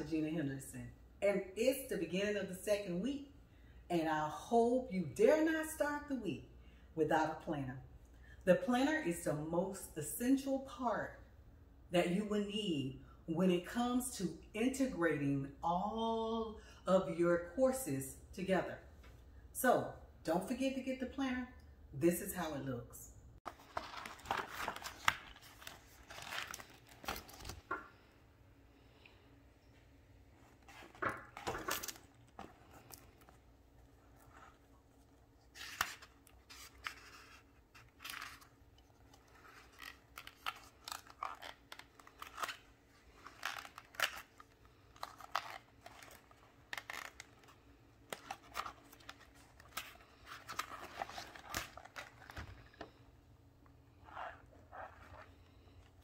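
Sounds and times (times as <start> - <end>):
paper pages rustling: 23.4 - 28.0, 30.3 - 53.0.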